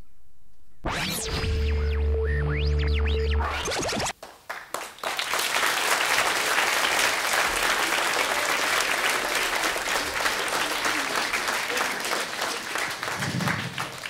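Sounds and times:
audience applauding: 0:04.1 - 0:14.0.

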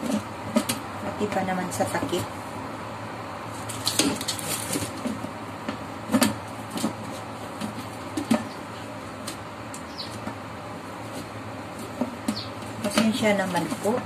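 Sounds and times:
plastic wrapping crinkling: 0:03.6 - 0:05.1.

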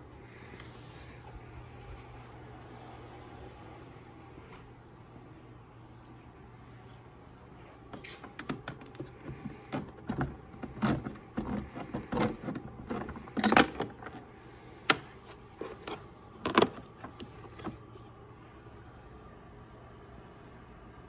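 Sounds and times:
metal tools rattling in plastic tray: 0:08.4 - 0:14.2
tool kit cover clicking and knocking: 0:08.4 - 0:14.2, 0:15.9 - 0:17.8.

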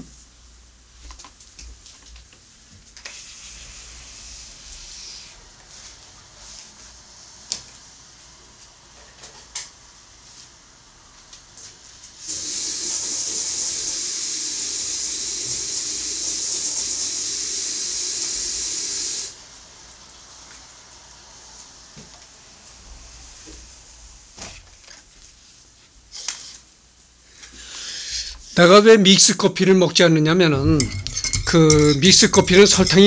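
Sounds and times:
kitchen tap running into sink: 0:12.2 - 0:19.4.

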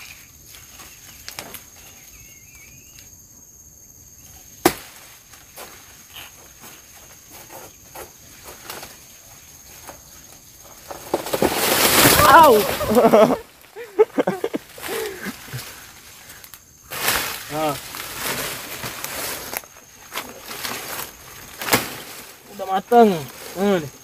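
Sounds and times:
high insect buzz: 0:00.0 - 0:24.0
sharp crack: 0:04.6 - 0:05.1, 0:11.1 - 0:13.2, 0:21.6 - 0:22.3
dry leaves rustling and crackling: 0:10.8 - 0:24.0.

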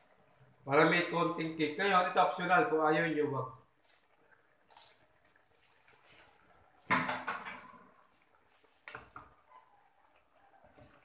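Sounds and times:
kitchen clatter: 0:06.8 - 0:08.1.

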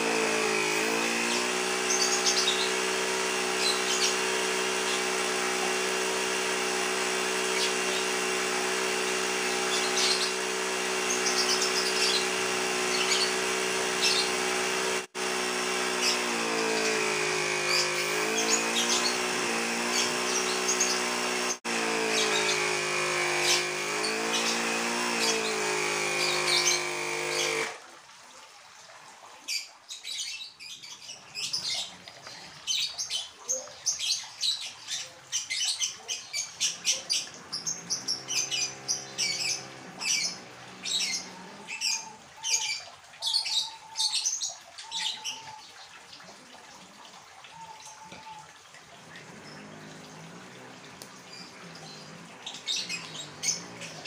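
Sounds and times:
birds chirping faintly: 0:00.0 - 0:27.6, 0:29.5 - 0:54.0
air compressor humming: 0:00.0 - 0:27.8, 0:37.6 - 0:41.7.

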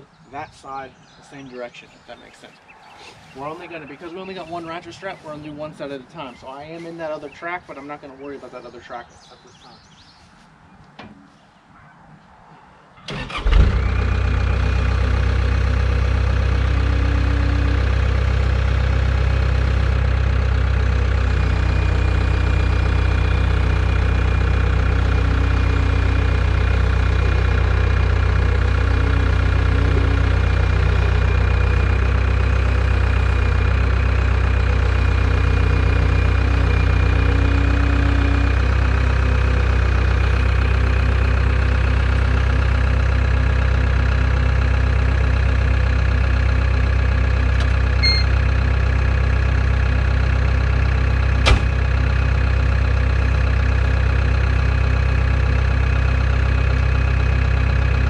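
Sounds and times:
diesel engine cranking and running: 0:13.0 - 0:58.0.

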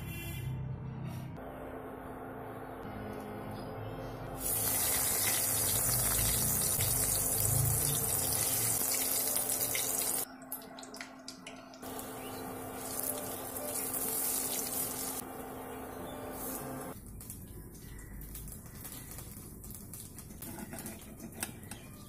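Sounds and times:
food sizzling in hot oil: 0:04.4 - 0:10.2, 0:11.9 - 0:15.2.

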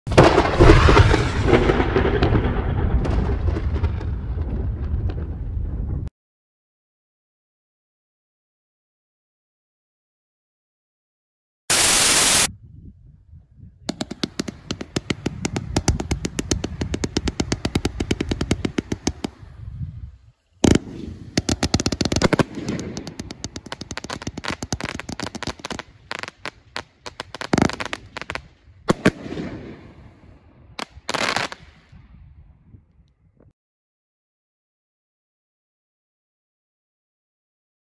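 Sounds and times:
loud firework bang: 0:00.1 - 0:05.4
firework cake shots bursting: 0:13.9 - 0:19.4, 0:20.6 - 0:26.5.

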